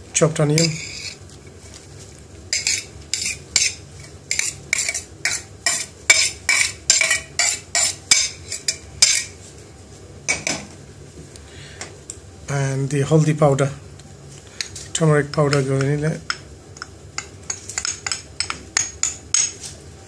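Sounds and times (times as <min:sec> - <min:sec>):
metal utensil scraping metal dish: 0:00.6 - 0:01.2, 0:02.5 - 0:09.3.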